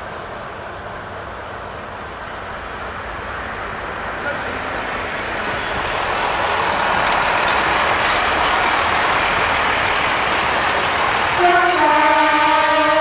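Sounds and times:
diesel train passing: 0:00.0 - 0:13.0
wheels clicking on track: 0:05.3 - 0:13.0.

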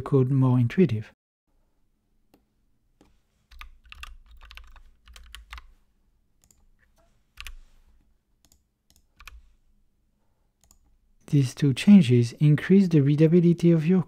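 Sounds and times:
typing on keyboard: 0:03.5 - 0:05.7, 0:07.4 - 0:07.6, 0:08.4 - 0:09.4.

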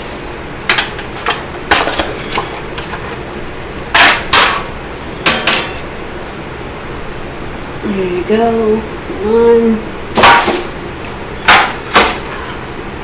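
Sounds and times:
metal baking sheets clanking: 0:03.9 - 0:05.8, 0:10.2 - 0:10.8, 0:11.4 - 0:12.8.

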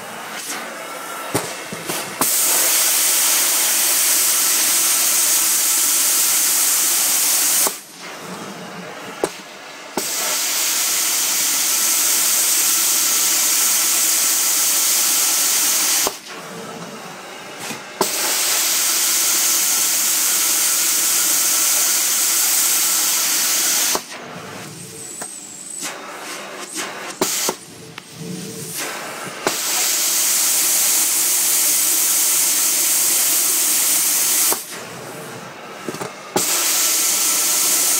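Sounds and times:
carpet cleaning wand hissing: 0:00.0 - 0:37.9.

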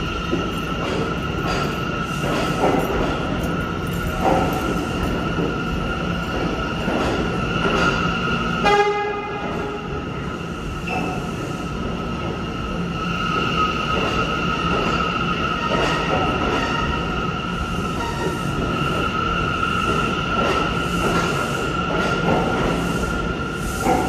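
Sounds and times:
high train whine: 0:00.0 - 0:24.0
train wheels rumbling on rail: 0:00.0 - 0:24.0
train horn blast: 0:08.6 - 0:09.8.

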